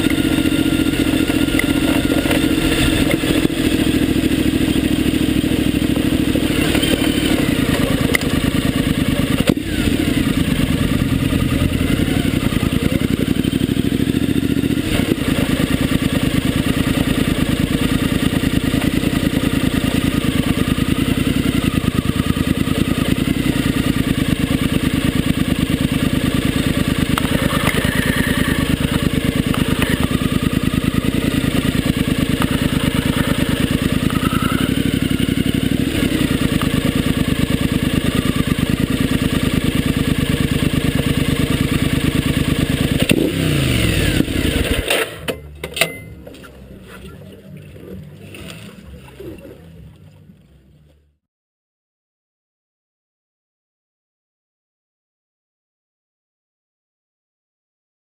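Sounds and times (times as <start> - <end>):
tyres rolling over gravel: 0.0 - 13.3, 27.0 - 37.2
motorcycle engine running: 0.0 - 51.2.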